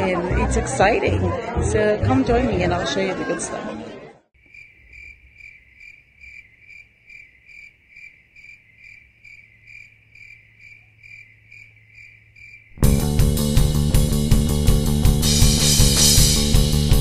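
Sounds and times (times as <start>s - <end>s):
cricket chirping: 4.4s - 12.8s
loud guitar music: 12.8s - 17.0s.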